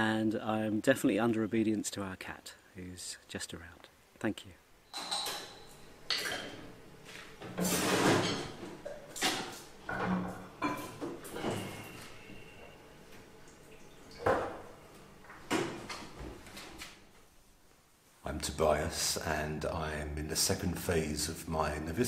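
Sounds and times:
crockery clinking and clattering: 4.9s - 6.6s, 7.6s - 11.7s
water splashing: 13.4s - 14.8s.

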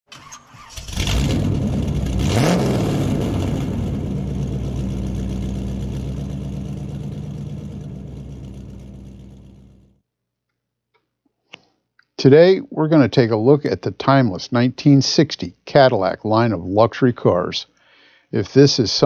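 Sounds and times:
car engine revving and idling: 0.8s - 10.0s.

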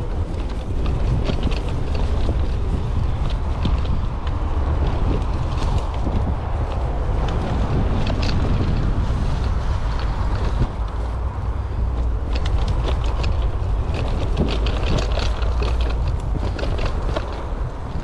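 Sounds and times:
bike clicks and rattles: 0.0s - 18.0s
wind buffeting microphone: 0.0s - 18.0s.

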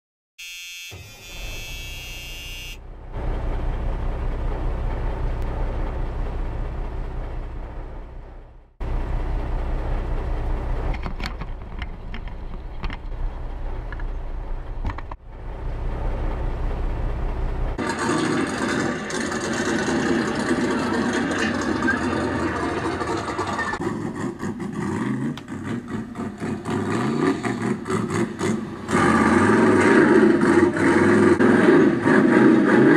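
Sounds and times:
pitched tone with overtones: 0.4s - 2.8s.

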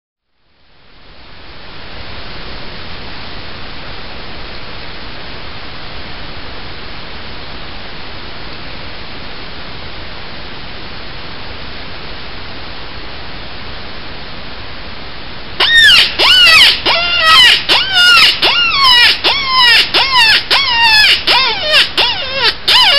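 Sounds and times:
steady hiss: 0.3s - 16.9s
coyote predator call squalling: 15.6s - 22.9s.

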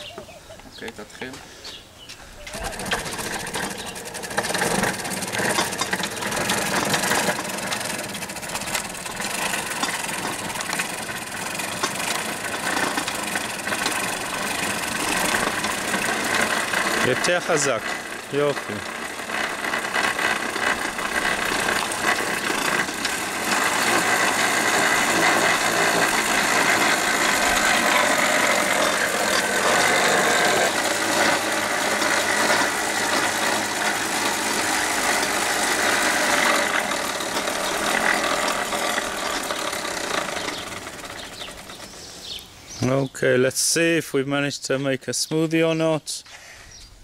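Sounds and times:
bicycle blender running: 2.5s - 42.6s.

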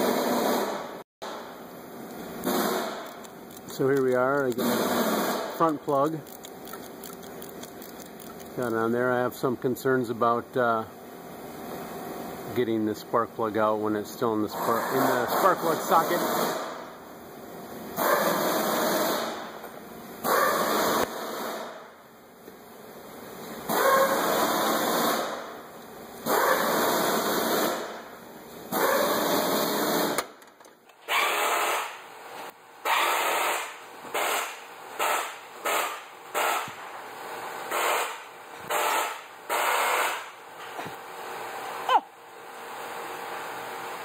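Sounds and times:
ratchet clicking: 2.8s - 4.8s, 5.6s - 8.8s.

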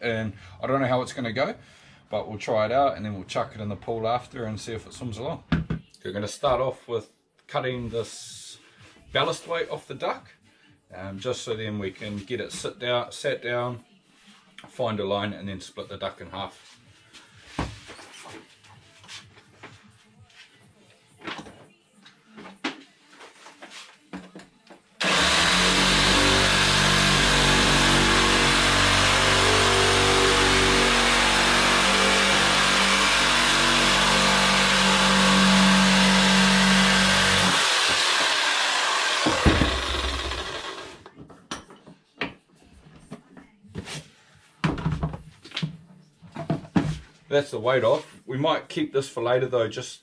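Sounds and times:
reciprocating saw cutting plastic: 25.0s - 41.1s.

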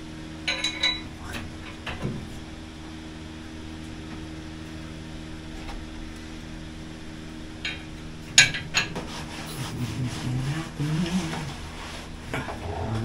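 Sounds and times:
low hum: 0.0s - 13.0s
metallic clanks and knocks: 0.4s - 2.3s, 7.6s - 9.1s
low indistinct voice: 1.1s - 1.7s, 9.5s - 11.6s, 12.3s - 13.0s.

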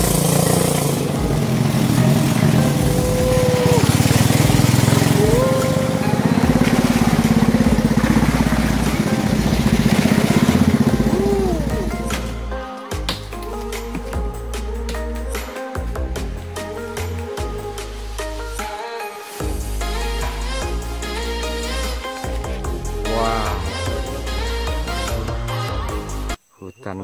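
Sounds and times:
small boat engine running: 0.0s - 12.5s.

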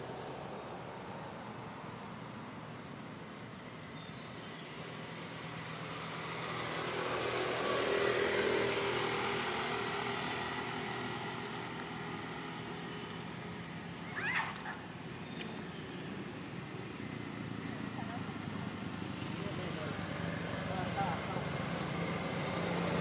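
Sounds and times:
vehicle passing by: 4.6s - 14.8s, 15.4s - 23.0s.

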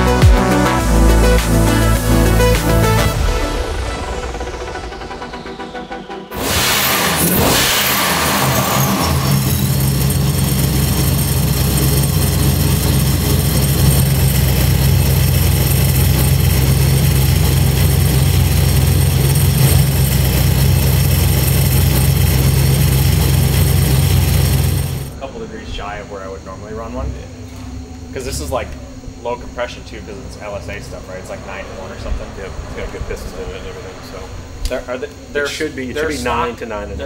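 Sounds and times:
car engine revving and idling: 0.0s - 25.2s, 30.2s - 35.4s
supercharger whine: 0.0s - 37.0s.

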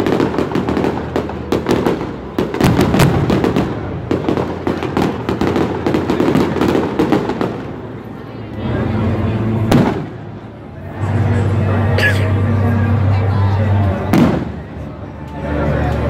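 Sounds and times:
fireworks bursting: 0.0s - 8.2s, 9.0s - 10.5s, 14.1s - 14.8s.

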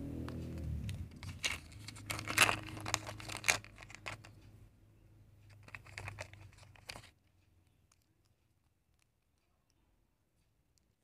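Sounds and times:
plastic pieces crinkling and clicking: 0.8s - 4.4s, 5.6s - 7.1s.

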